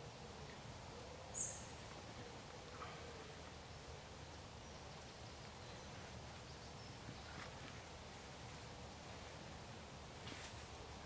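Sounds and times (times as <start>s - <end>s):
soft rustle: 5.4s - 11.0s.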